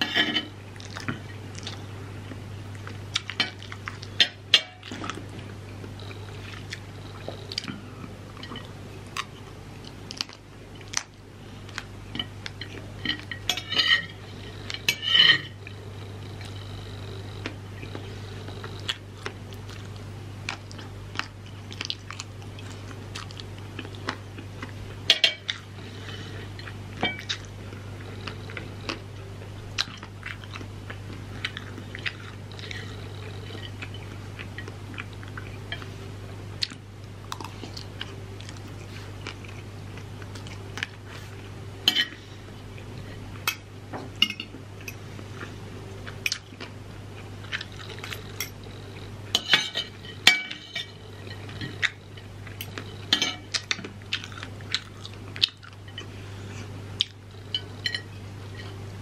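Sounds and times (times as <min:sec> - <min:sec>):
low hum: 0:00.0 - 0:59.0
person chewing: 0:04.8 - 0:13.4, 0:17.4 - 0:35.9, 0:36.6 - 0:41.5, 0:44.8 - 0:49.1, 0:50.6 - 0:58.8.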